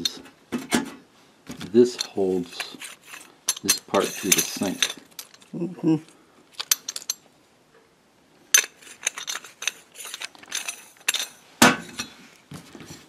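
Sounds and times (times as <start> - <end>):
metal parts clinking together: 1.8 - 5.5, 6.5 - 7.2, 8.5 - 12.2.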